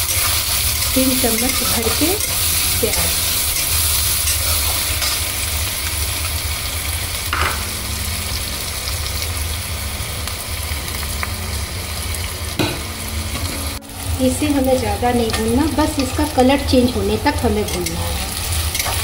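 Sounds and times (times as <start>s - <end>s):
metal spatula stirring: 0.0s - 5.3s, 17.7s - 19.0s
onions sizzling in hot oil: 0.0s - 19.0s.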